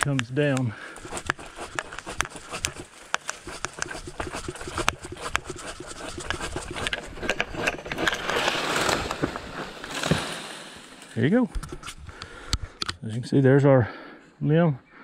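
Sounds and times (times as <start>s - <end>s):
pruning saw cutting wood: 0.6s - 11.9s
leaves rustling: 0.8s - 12.0s.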